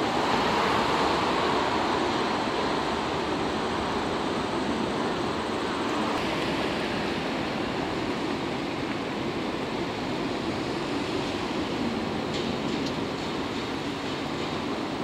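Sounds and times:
train rolling over rail points: 10.0s - 15.0s.

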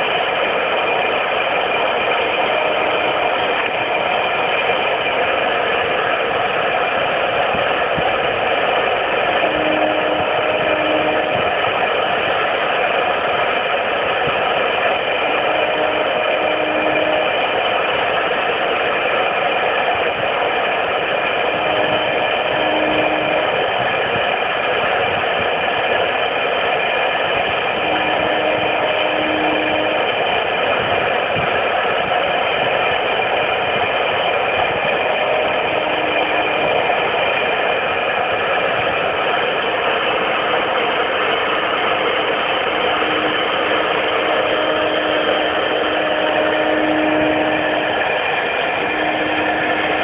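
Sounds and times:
steady low tone: 0.0s - 18.7s, 32.8s - 50.0s
router spindle whirring: 0.0s - 50.0s.

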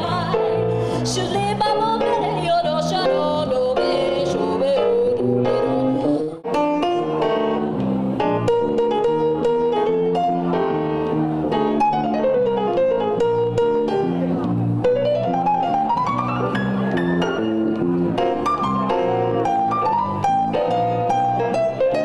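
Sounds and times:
woman singing: 0.0s - 6.4s
grand piano: 0.0s - 22.0s
electric bass: 4.4s - 22.0s.

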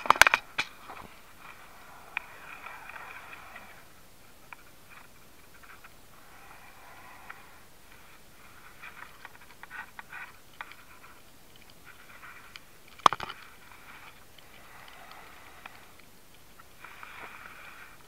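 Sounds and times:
rustling and scraping of cable: 0.0s - 18.0s.

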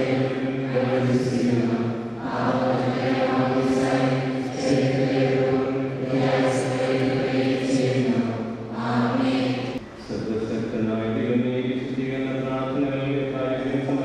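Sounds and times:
group singing a slow chant: 0.0s - 9.8s.

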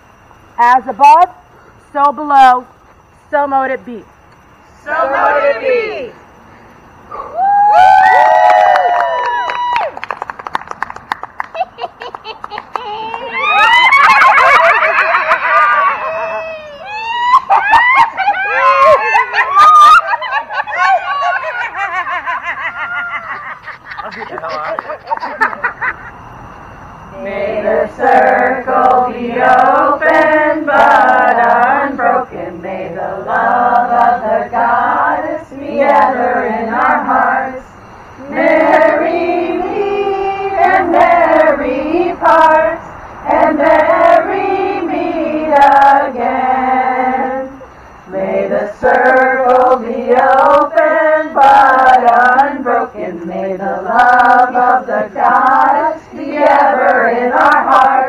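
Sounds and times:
woman singing slow song: 27.2s - 58.0s.

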